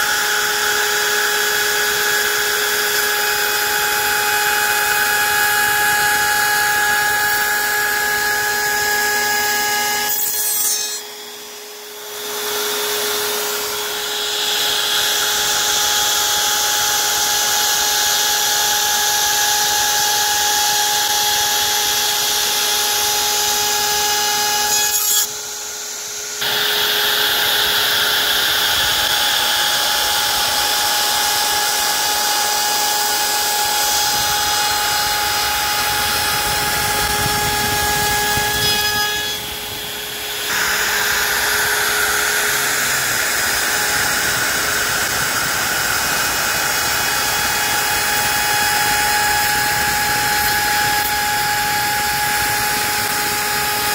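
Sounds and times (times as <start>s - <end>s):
bit cutting wood: 0.0s - 53.9s
router spindle whine: 0.0s - 53.9s.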